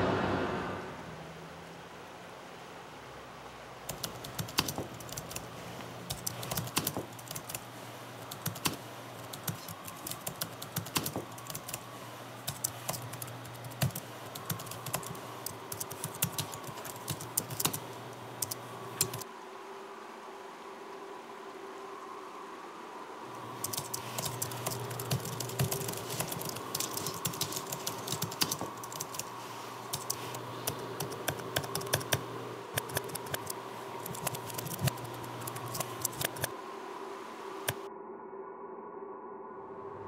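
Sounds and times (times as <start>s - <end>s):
low steady hum: 0.0s - 40.0s
keyboard typing clicks: 3.9s - 5.5s, 6.1s - 11.8s, 12.4s - 19.2s, 23.6s - 29.3s, 29.9s - 36.5s.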